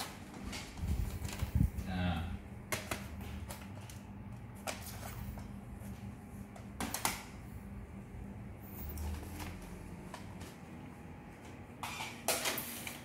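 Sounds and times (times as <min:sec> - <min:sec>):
low steady hum: 0:00.0 - 0:12.1.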